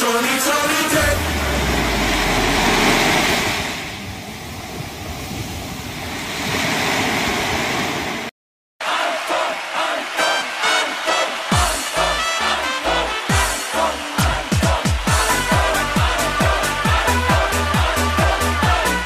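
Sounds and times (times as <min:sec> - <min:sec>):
dance music: 0:00.0 - 0:03.7, 0:08.8 - 0:19.0
loud rushing noise: 0:00.5 - 0:04.9
low rumble: 0:00.9 - 0:06.0.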